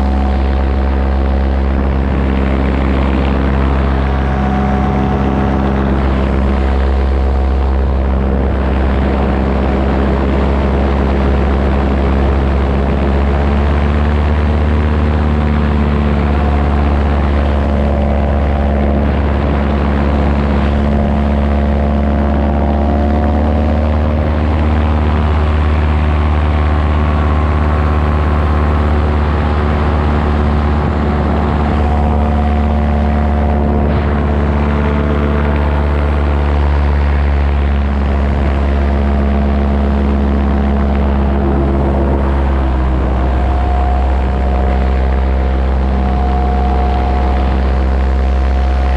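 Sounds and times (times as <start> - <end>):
paramotor engine and propeller: 0.0 - 48.9.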